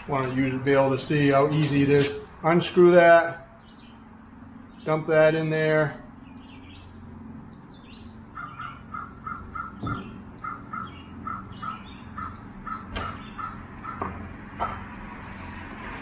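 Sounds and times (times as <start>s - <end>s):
bird chirps: 3.6s - 5.1s, 6.2s - 15.7s
repeated animal call: 5.9s - 14.9s.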